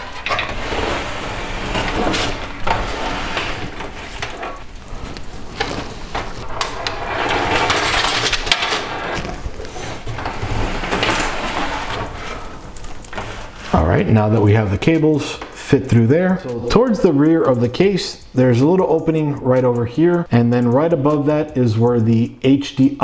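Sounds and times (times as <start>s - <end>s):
sharp clicks and knocks: 0.0s - 13.7s
cables scraping against metal: 0.0s - 20.1s.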